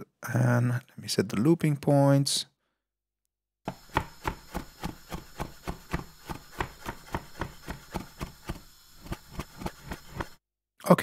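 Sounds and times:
knife chopping garlic: 3.7s - 10.4s.

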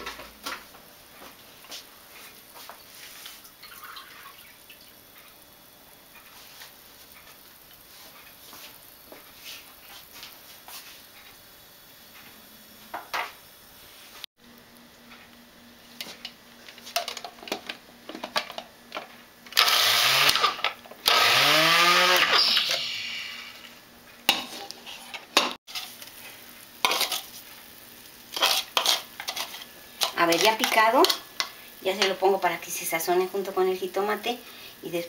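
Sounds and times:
electric food chopper whirring: 19.5s - 23.6s.

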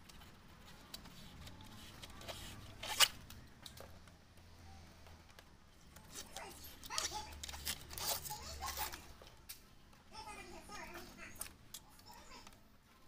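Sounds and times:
film peeling with crackling rips: 0.0s - 3.9s, 5.3s - 9.8s
blade scraping film on glass: 0.8s - 3.4s, 6.0s - 9.2s.

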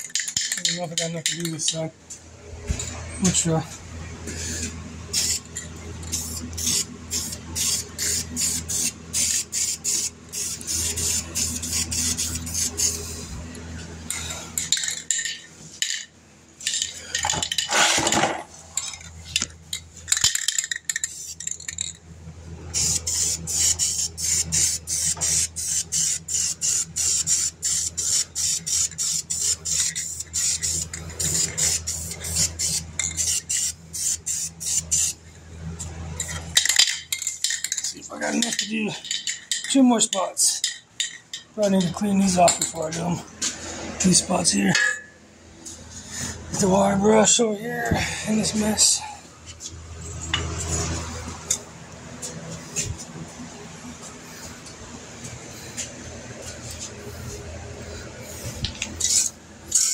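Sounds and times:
spray paint hissing: 4.4s - 13.4s, 18.8s - 22.0s, 22.7s - 35.2s, 36.2s - 39.7s, 54.0s - 59.9s.

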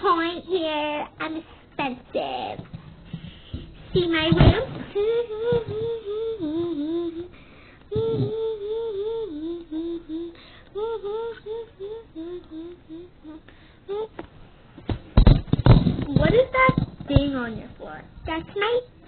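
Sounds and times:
girl humming: 3.9s - 14.2s.

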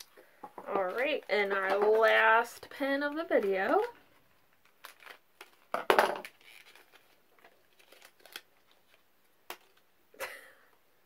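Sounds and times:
paper rustling: 6.3s - 9.0s.

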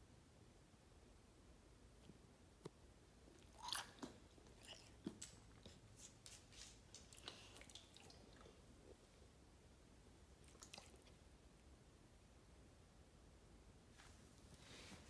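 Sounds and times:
dog chewing: 3.4s - 5.8s.

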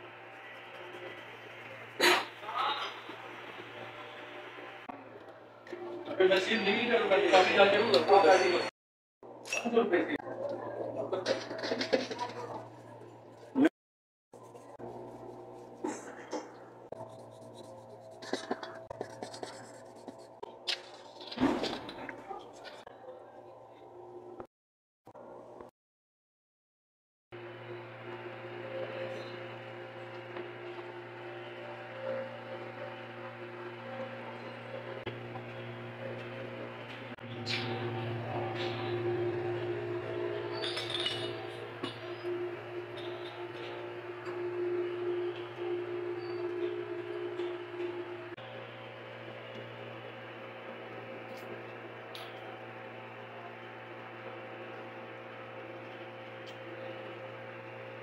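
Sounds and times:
electrical hum: 27.4s - 58.0s.

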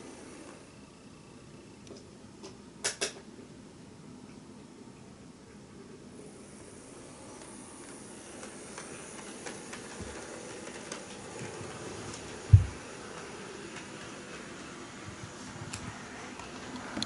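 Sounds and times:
model train motor hum: 0.0s - 1.8s, 6.1s - 17.0s
wheels clicking on rails: 7.3s - 17.0s.

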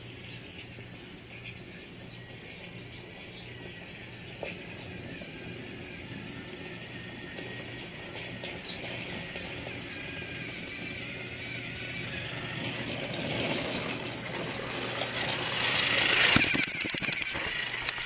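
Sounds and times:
toy train electric motor running: 0.0s - 18.0s
rapid clicks: 8.2s - 18.0s.

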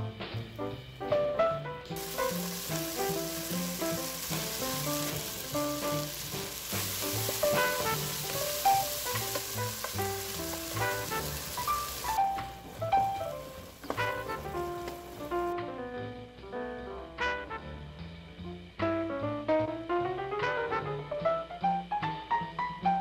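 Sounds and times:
jazz music: 0.0s - 23.0s
vegetables sizzling in a pan: 2.0s - 15.6s.

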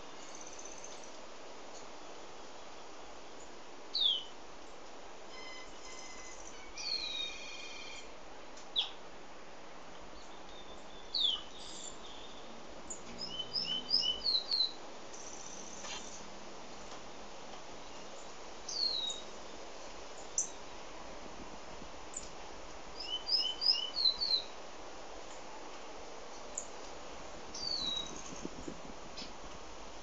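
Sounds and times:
bird singing: 3.9s - 4.3s, 5.3s - 8.1s, 10.2s - 16.2s, 17.8s - 19.3s, 23.0s - 24.5s, 27.5s - 28.5s.

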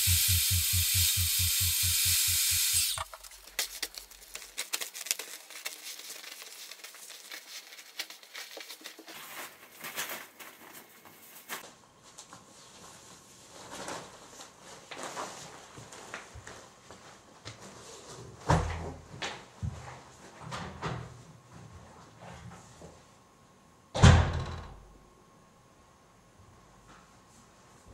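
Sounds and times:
electric air pump humming: 0.0s - 7.1s
plastic film crinkling: 2.9s - 11.6s.

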